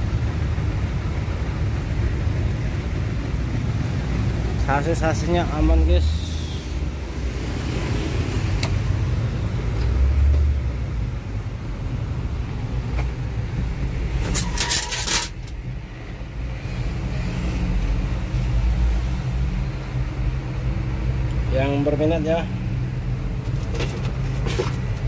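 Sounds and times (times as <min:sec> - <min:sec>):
motor vehicle rumble: 0:00.0 - 0:25.0
loud rustling scrape: 0:14.1 - 0:15.4.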